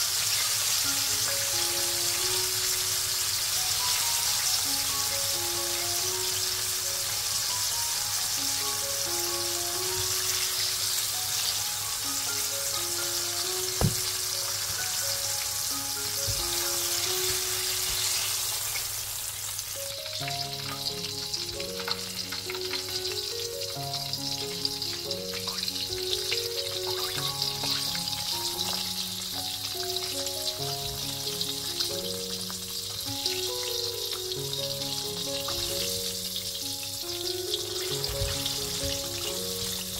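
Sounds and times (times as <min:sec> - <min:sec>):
background music with simple melody: 0:00.0 - 0:39.9
oil sizzling and crackling: 0:00.0 - 0:39.9
sharp tap: 0:13.8 - 0:14.1.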